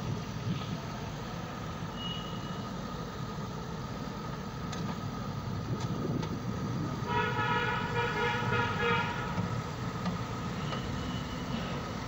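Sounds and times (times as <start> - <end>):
backhoe diesel engine running: 0.0 - 12.0
horn-like pitched tone: 7.1 - 9.3.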